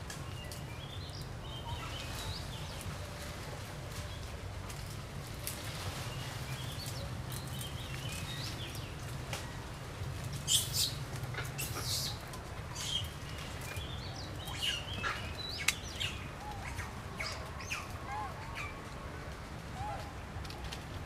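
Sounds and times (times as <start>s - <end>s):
small birds chirping: 0.1s - 3.0s, 5.5s - 18.8s.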